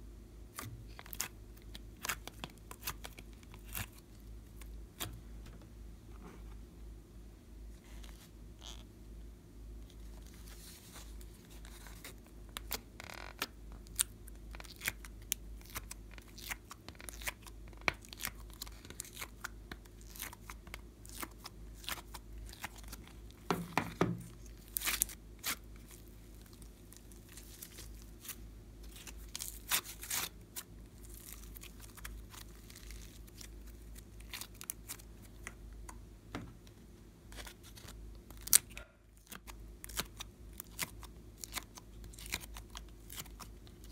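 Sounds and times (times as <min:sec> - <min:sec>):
faint low hum: 0:00.0 - 0:43.9
slime sticky crackles: 0:09.9 - 0:23.5, 0:24.3 - 0:36.0, 0:37.3 - 0:43.9.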